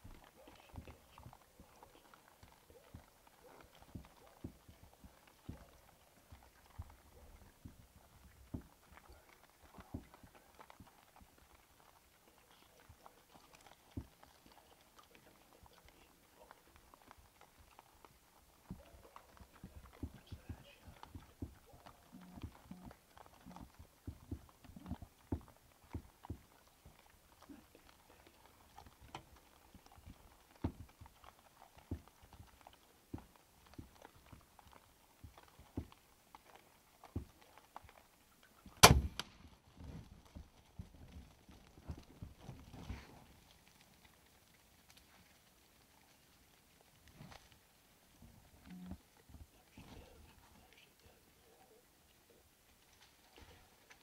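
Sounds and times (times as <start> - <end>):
hogs chewing and crunching: 0.0 - 54.0
low thump: 38.8 - 39.2
sharp crack of bow shot: 38.8 - 39.2.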